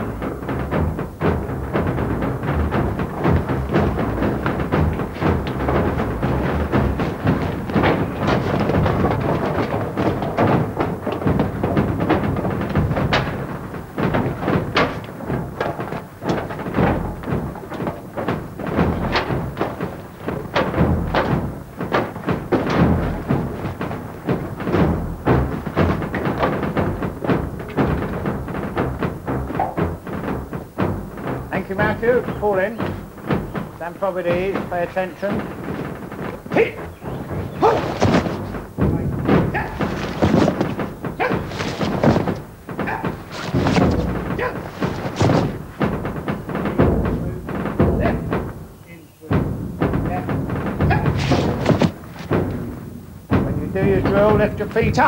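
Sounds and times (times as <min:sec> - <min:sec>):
boots clattering down metal stairs: 0:00.0 - 0:55.0.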